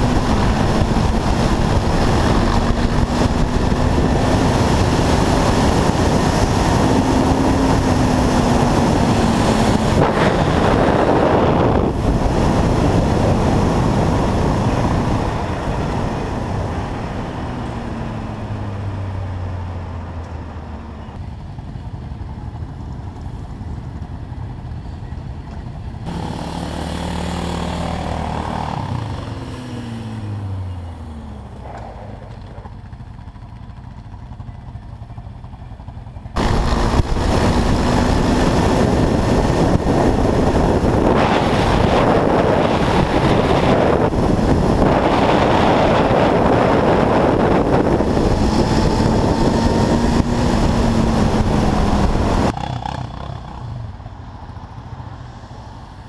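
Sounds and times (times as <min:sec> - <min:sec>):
wind rush on microphone: 0:00.0 - 0:20.2, 0:36.4 - 0:55.0
another quad engine approaching: 0:00.0 - 0:56.0
quad engine: 0:00.0 - 0:56.0.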